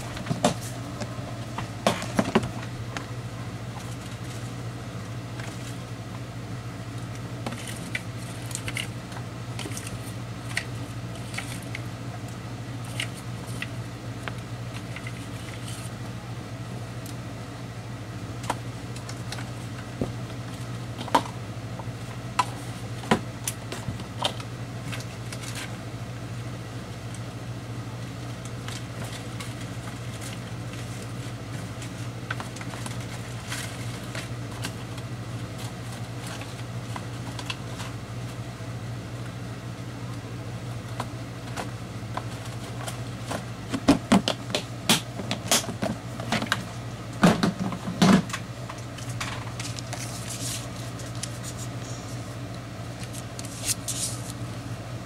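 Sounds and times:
steady low hum: 0.0 - 55.0
paper and plastic rustling: 23.8 - 25.8, 28.2 - 38.0, 41.4 - 43.9, 48.8 - 52.4, 53.0 - 54.4.

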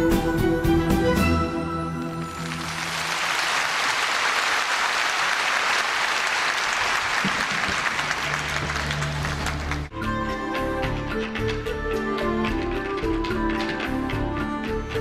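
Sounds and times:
audience applauding: 2.2 - 9.9
low music: 8.3 - 15.0.

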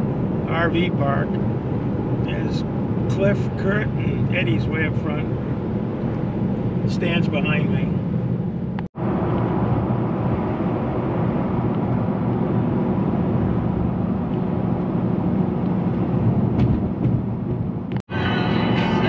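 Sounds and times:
car road and engine noise: 0.0 - 19.0.

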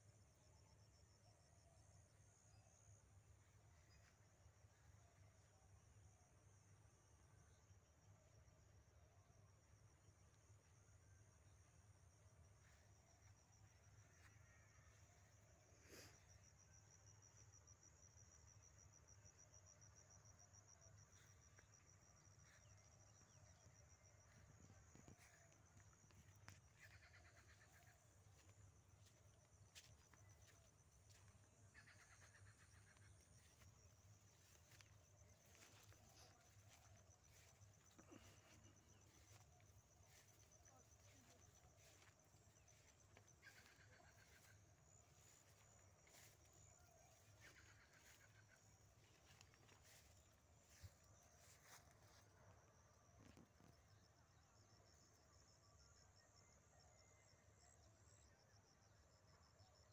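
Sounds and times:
faint chirps: 9.6 - 58.2
faint insect trilling: 12.0 - 54.1.

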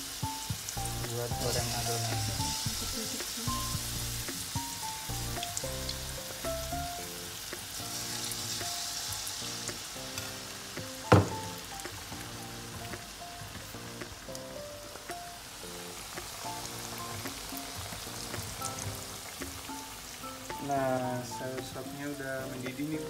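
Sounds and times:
background music: 0.0 - 23.0
batter sizzling in hot oil: 0.0 - 23.0
sharp knock: 11.1 - 11.6.

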